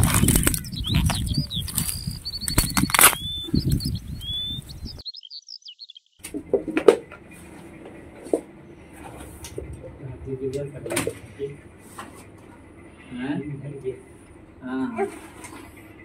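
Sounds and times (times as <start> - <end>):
dry leaves and earth crunching: 0.0 - 3.9
small birds chirping: 0.0 - 11.6.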